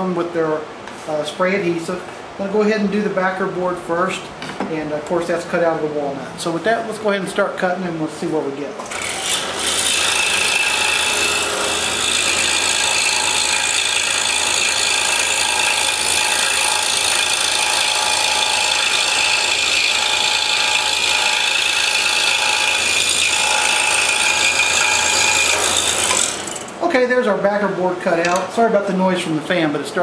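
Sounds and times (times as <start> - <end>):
scroll saw cutting wood: 8.8 - 26.7.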